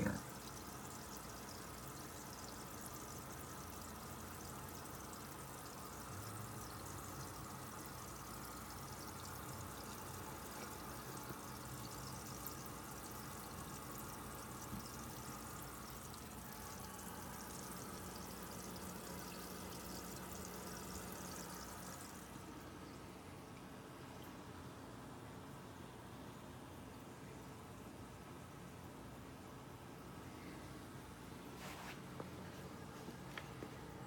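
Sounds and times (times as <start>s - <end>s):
water running and splashing: 0.0s - 22.6s
faint low hum: 0.0s - 34.0s.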